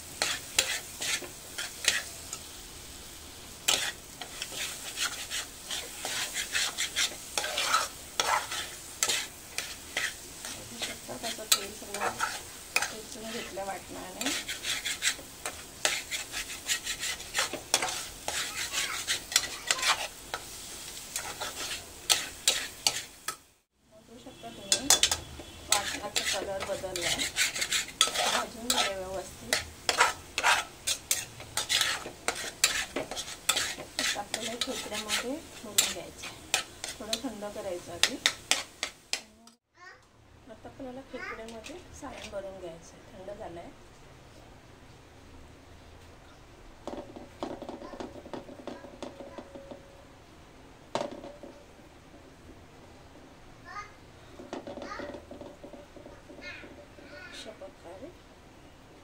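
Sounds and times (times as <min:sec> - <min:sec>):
paste sizzling in oil: 0:00.0 - 0:39.6
spoon scraping a metal pot: 0:00.2 - 0:02.1, 0:03.7 - 0:23.1, 0:24.5 - 0:39.3.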